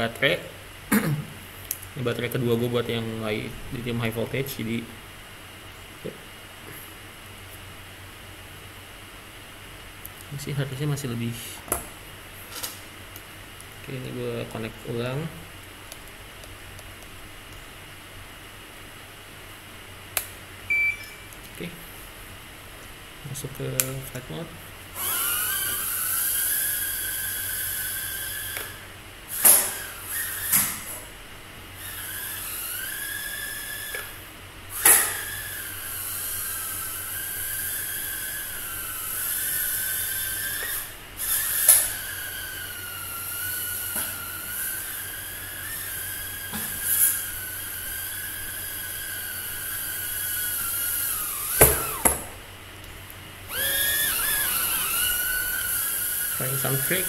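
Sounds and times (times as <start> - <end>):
micro drone buzzing whine: 24.9 - 52.5, 53.3 - 57.0.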